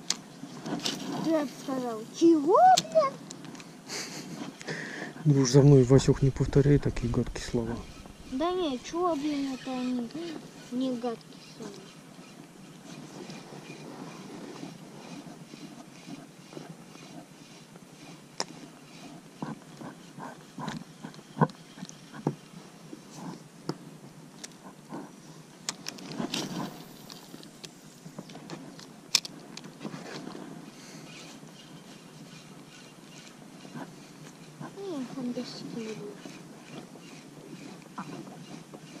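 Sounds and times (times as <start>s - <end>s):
faint low rumble: 5.4s - 9.1s.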